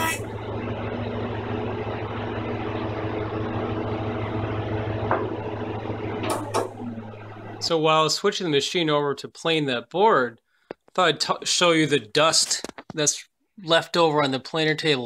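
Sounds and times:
jointer-planer humming: 0.0 - 7.7.

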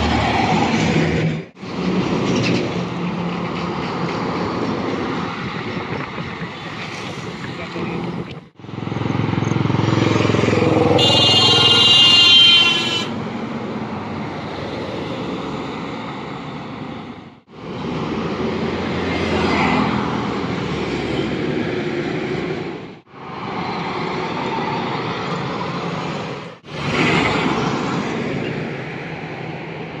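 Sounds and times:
highway traffic passing: 0.0 - 30.0
vehicle horn: 10.9 - 13.2.

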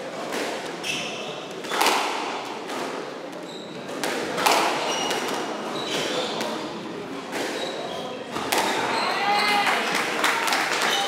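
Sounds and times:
squash ball hit by rackets: 1.6 - 3.1, 3.9 - 6.6, 8.3 - 8.9
shoes squeaking on wooden floor: 3.4 - 4.0, 4.8 - 6.7, 7.5 - 9.6.

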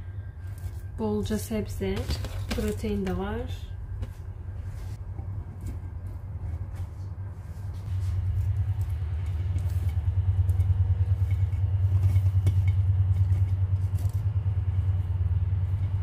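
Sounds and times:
loud low rumble: 3.3 - 16.0.

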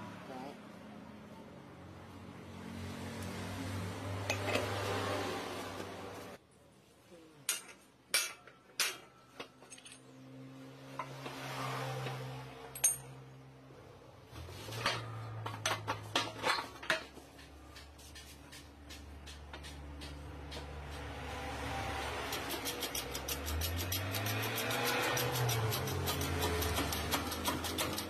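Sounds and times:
metal tools clinking together: 7.5 - 10.2, 12.7 - 13.1.

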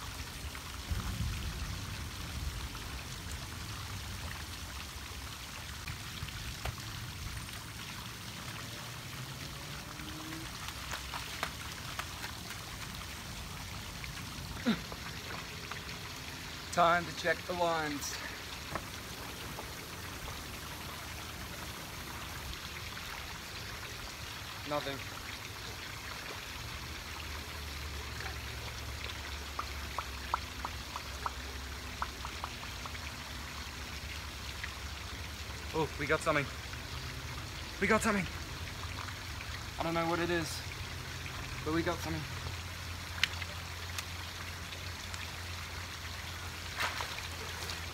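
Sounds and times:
small ticks and drips: 0.0 - 47.9
water rushing from waterfall: 0.0 - 47.9
waterfall rushing: 12.6 - 22.2.

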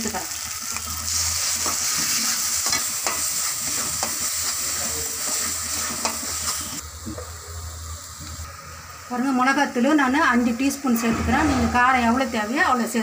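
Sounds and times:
paste sizzling in oil: 0.0 - 7.1.

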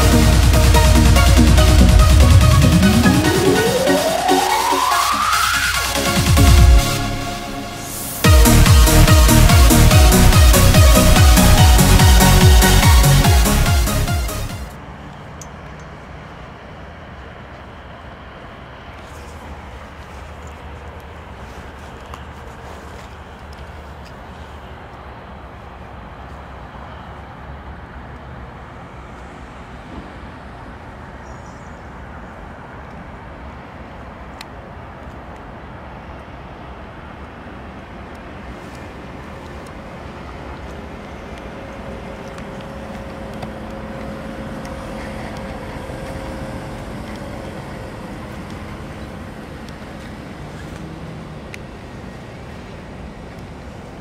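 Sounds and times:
distant locomotive engine rumble: 0.0 - 54.0.

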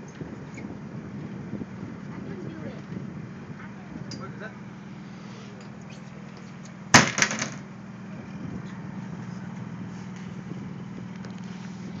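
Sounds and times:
boat engine humming: 0.0 - 12.0
sharp clatter of knocks: 6.9 - 7.6.

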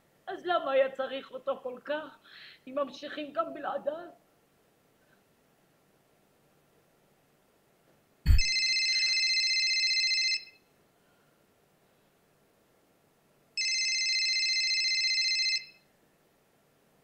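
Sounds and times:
short thump: 8.3 - 8.5
telephone ringing: 8.3 - 10.6, 13.6 - 15.8.

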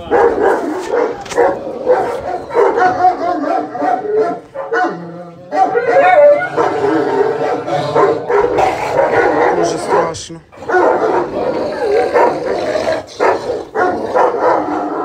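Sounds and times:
dogs whining: 0.0 - 9.7
dogs barking: 0.0 - 15.0.

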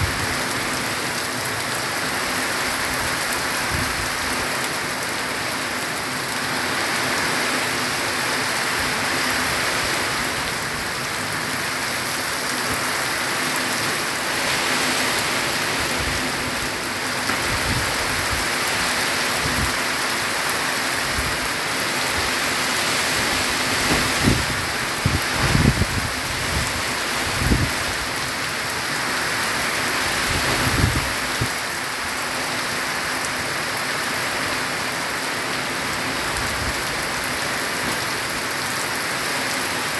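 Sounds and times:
heavy rain on a metal roof: 0.0 - 39.9
water streaming onto ground: 0.0 - 39.9.

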